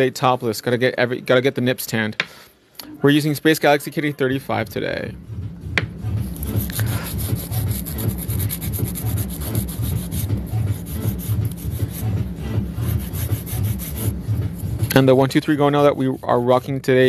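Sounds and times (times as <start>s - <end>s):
nail file rasping: 6.3s - 12.2s, 12.8s - 15.0s.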